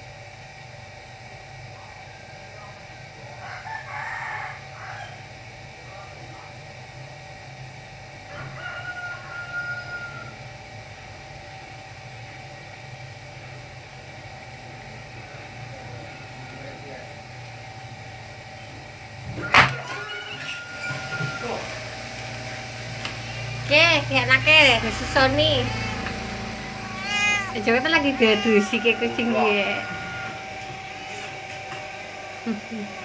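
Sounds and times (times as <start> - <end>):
rooster crowing: 3.3 - 5.3, 8.3 - 10.5, 19.4 - 21.6, 24.5 - 33.0
steady low hum: 21.5 - 33.0.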